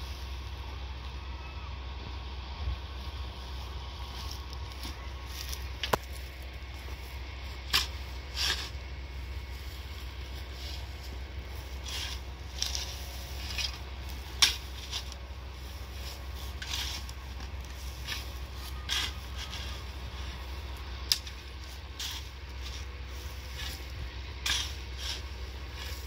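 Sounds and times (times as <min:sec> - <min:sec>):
hoe chopping into dry soil: 0:07.6 - 0:08.8, 0:11.7 - 0:20.3, 0:21.0 - 0:26.0.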